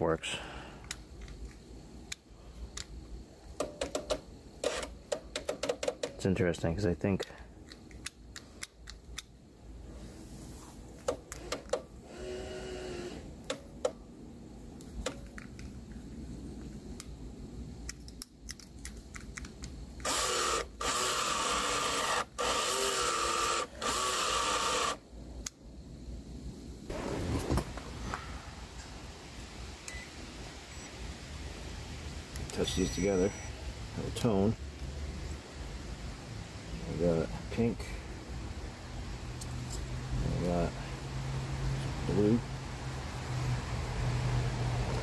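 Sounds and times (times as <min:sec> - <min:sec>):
power mirror motor whirring: 0:20.0 - 0:25.0.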